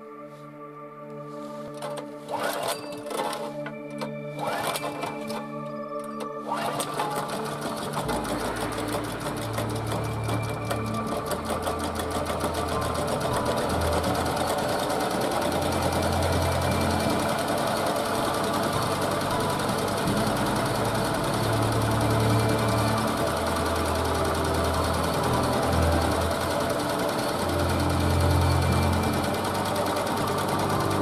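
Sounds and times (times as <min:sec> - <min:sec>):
generator engine clattering: 0:06.5 - 0:31.0.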